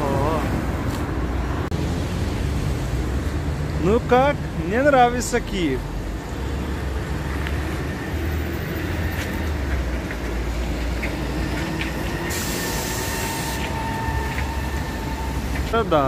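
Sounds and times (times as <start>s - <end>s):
street traffic rumble: 0.0s - 16.0s
hiss: 12.2s - 13.8s.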